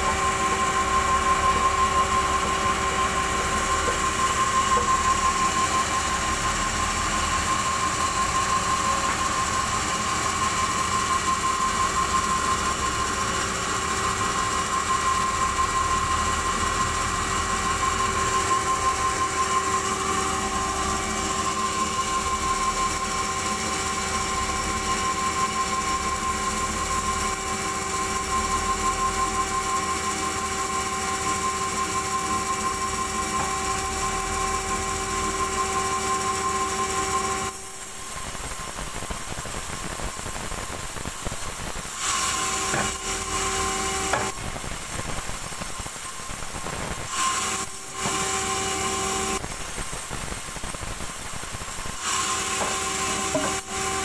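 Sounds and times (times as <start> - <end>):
band saw whine: 0.0 - 54.0.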